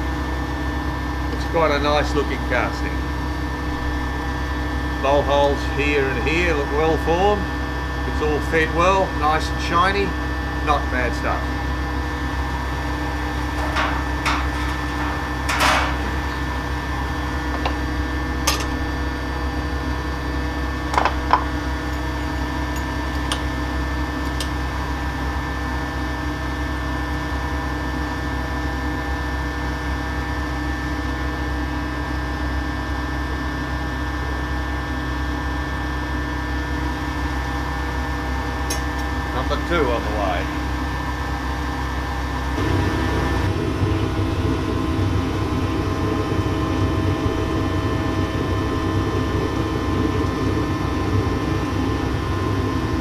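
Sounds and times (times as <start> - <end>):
machinery hum: 0.0 - 31.6, 35.3 - 53.0
metal clinks and knocks: 13.4 - 16.4.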